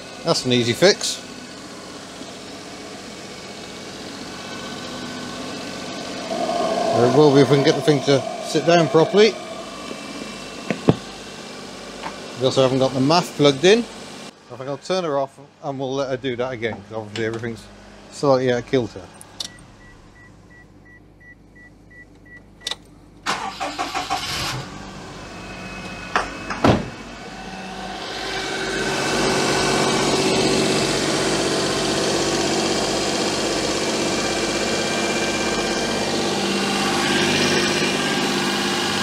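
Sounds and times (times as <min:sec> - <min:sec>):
car engine starting and idling: 0:00.0 - 0:14.3, 0:22.6 - 0:39.0
car warning chime beeping: 0:19.5 - 0:22.7.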